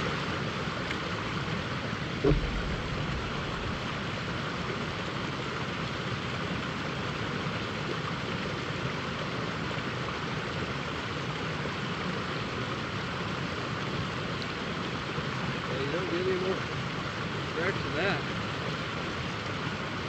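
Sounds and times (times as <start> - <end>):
river water rushing over rocks: 0.0 - 15.7.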